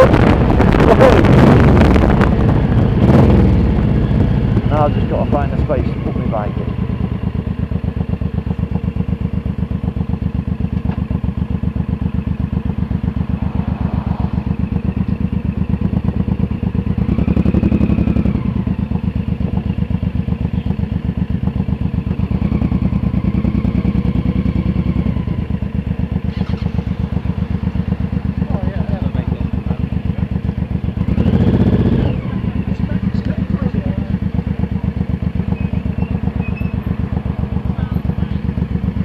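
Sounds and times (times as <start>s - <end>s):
motorcycle engine throbbing: 0.0s - 39.0s.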